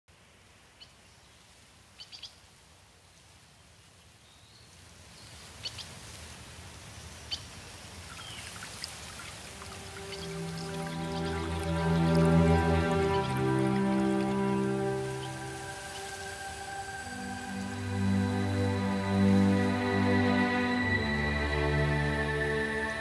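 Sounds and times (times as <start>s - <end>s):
stream trickling over rocks: 5.4s - 23.0s
soft music: 9.4s - 23.0s
bird chirps: 9.6s - 18.6s.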